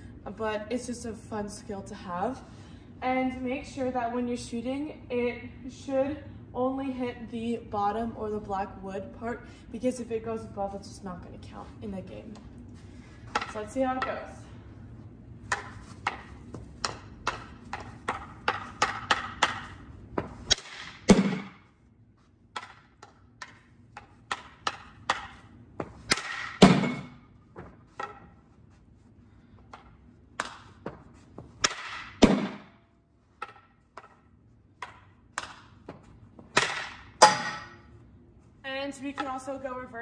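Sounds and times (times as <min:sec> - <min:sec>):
hockey stick tapping ball: 0:13.3 - 0:14.3, 0:15.4 - 0:21.7, 0:22.5 - 0:28.5, 0:29.6 - 0:32.7, 0:33.3 - 0:37.8, 0:38.9 - 0:39.6.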